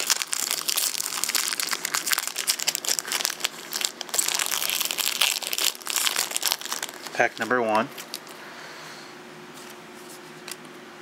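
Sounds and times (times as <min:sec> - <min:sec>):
foil pack crinkling: 0:00.0 - 0:08.4.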